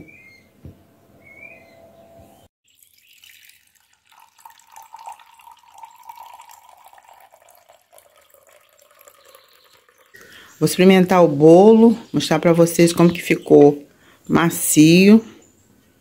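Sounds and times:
liquid trickling: 2.6s - 10.7s.

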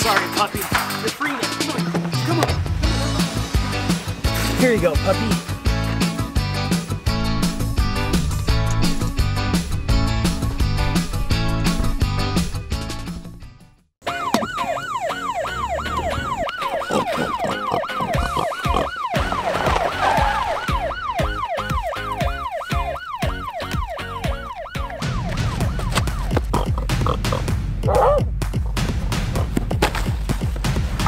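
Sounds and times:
police siren yelping: 14.0s - 26.4s.

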